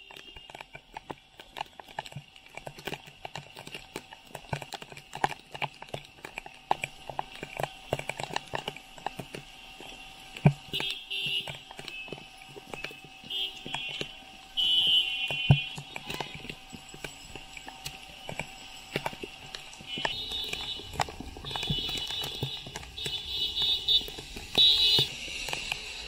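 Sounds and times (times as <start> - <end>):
sharp taps of raindrops: 7.2 - 16.3.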